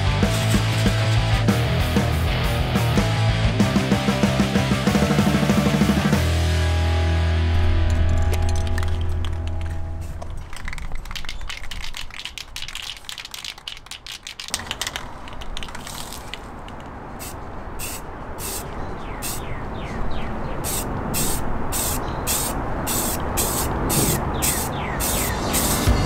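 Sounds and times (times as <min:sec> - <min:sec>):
rock music with electric guitar: 0:00.0 - 0:09.9
quick clicks: 0:08.1 - 0:17.0
spray paint can hissing: 0:10.5 - 0:16.4, 0:17.2 - 0:18.6, 0:19.2 - 0:19.4, 0:20.6 - 0:26.0.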